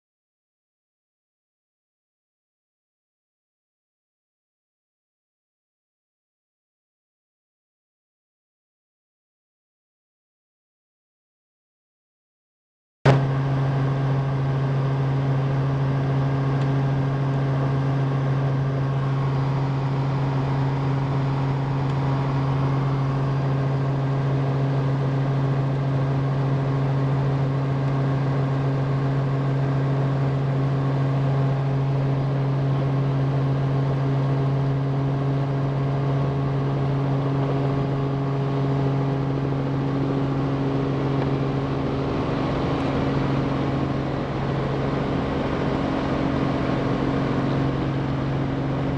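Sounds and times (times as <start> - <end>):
helicopter engine and rotors droning: 13.1 - 48.9.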